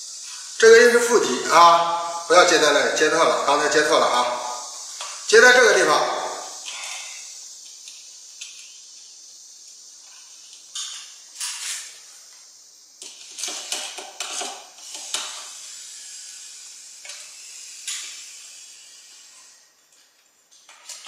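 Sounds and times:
screwdriver clicking and scraping on metal: 10.8 - 11.9.

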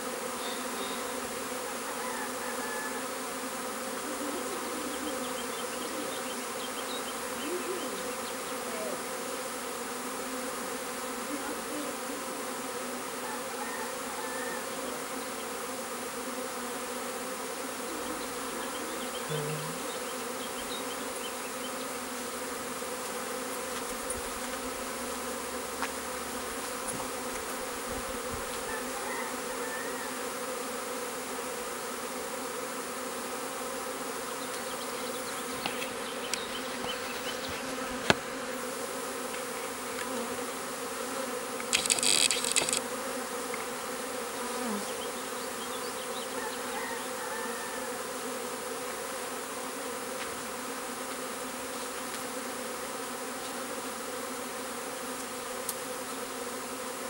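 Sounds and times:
bee swarm buzzing: 0.0 - 57.0.

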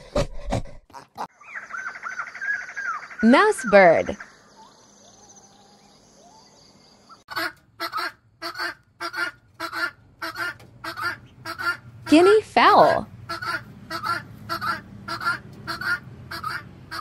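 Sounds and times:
guineafowl harsh calls: 1.3 - 5.4, 7.1 - 12.3, 13.2 - 17.0.

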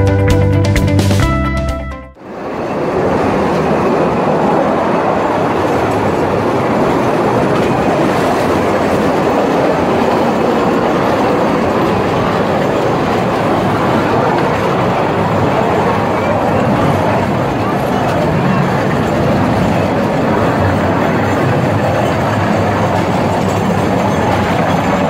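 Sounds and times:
mine train rolling on rails: 2.2 - 25.0.

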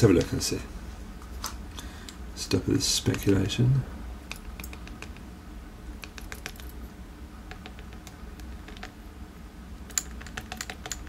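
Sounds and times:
tiny lock pins clicking: 9.9 - 11.0.

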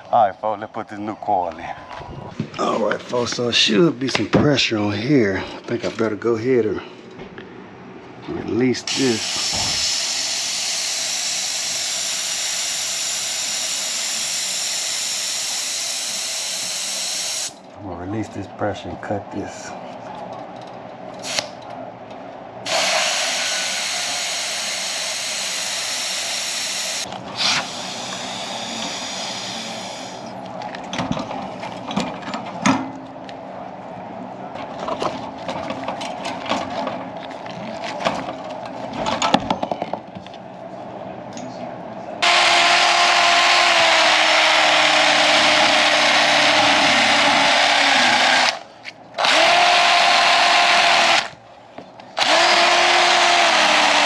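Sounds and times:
pressurised gas hissing out: 9.2 - 11.6
cordless drill with wire brush: 22.7 - 30.2, 42.2 - 48.6, 49.2 - 51.3, 52.2 - 54.0.

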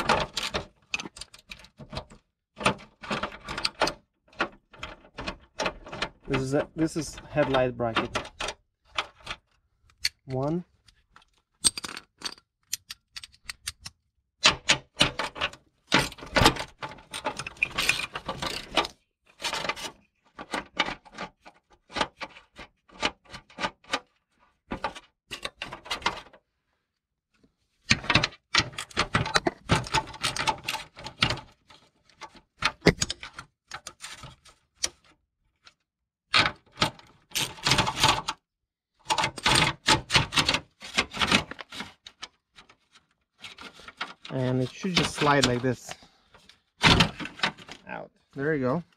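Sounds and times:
hand tools and fasteners rattling: 14.5 - 19.8, 43.5 - 46.1.

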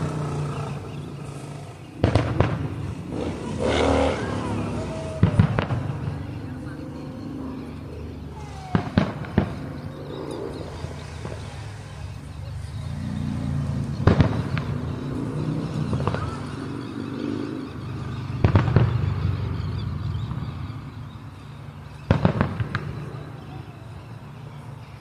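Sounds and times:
fireworks bangs: 1.9 - 6.8, 8.4 - 10.0, 10.6 - 12.2, 13.9 - 16.6, 18.4 - 19.6, 22.0 - 23.7.

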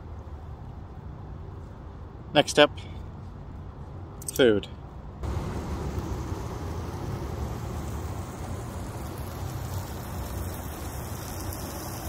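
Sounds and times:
burgers sizzling: 5.2 - 12.0.

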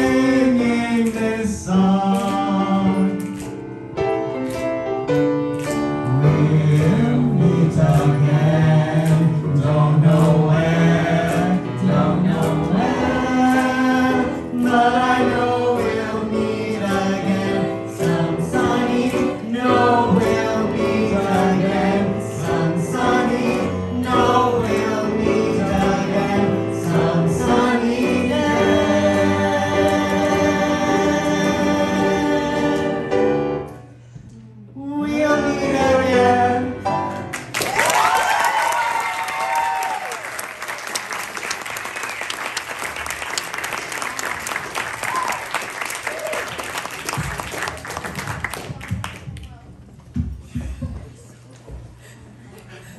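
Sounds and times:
people singing into microphones: 0.0 - 3.4, 6.1 - 33.4, 34.8 - 37.0.

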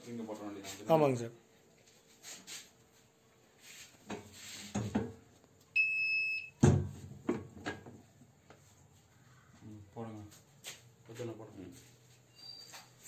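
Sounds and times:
electronic buzzer beep: 5.8 - 6.6.

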